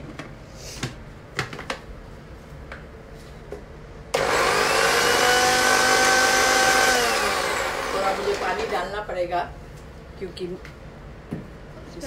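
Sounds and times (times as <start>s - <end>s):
electric blender whining: 4.2s - 8.8s.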